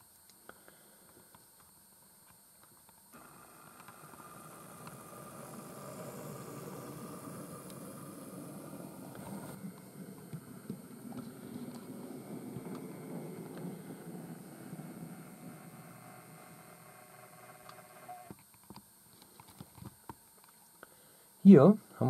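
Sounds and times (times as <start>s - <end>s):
model train rumbling on track: 3.2s - 17.5s.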